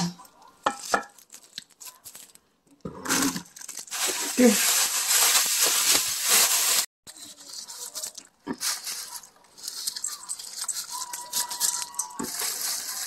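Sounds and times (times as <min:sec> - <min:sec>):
cabbage tossed in bowl: 0:03.1 - 0:13.0
salt pattering on leaves: 0:03.6 - 0:13.0.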